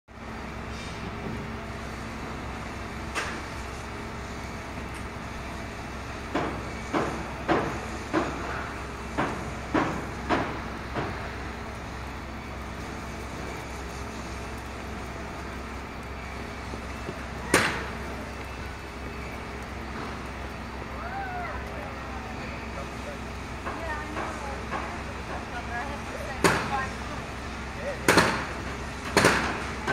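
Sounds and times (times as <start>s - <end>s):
low machinery hum: 0.1s - 29.9s
sharp knocks: 6.3s - 11.2s, 28.1s - 28.5s, 29.1s - 29.9s.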